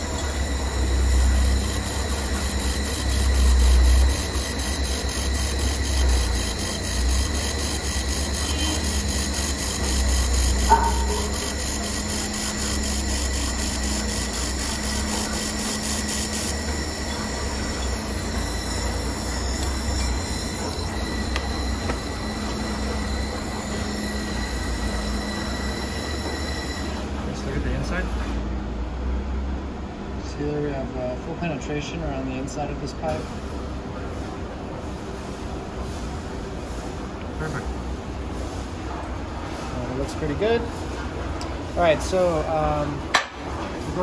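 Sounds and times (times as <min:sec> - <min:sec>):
laser welder pulsing: 0:00.0 - 0:27.1
high-pitched machine whine: 0:00.0 - 0:28.3
low machine hum: 0:00.0 - 0:44.0.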